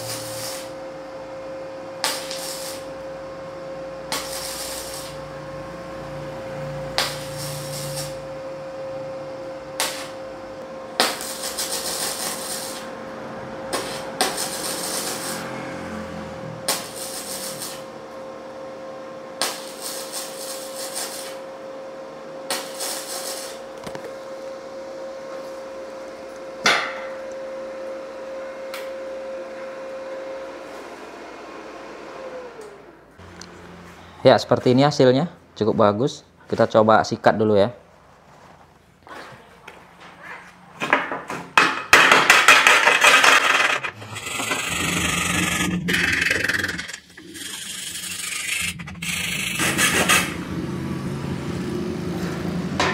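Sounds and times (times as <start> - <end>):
welding arc crackle: 0.0 - 0.8, 2.0 - 3.0, 4.0 - 5.3, 6.9 - 8.3, 9.8 - 10.2, 11.0 - 13.0, 13.7 - 15.6, 16.7 - 17.9, 19.4 - 21.4, 22.5 - 23.6, 42.3 - 50.9
steady welder hum: 0.0 - 34.0, 41.9 - 52.9.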